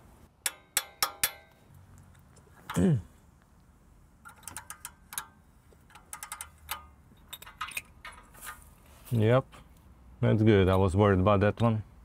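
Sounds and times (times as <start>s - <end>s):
metallic ticks: 0.4s - 2.8s, 4.2s - 8.3s
socket ratchet clicking: 4.2s - 8.2s.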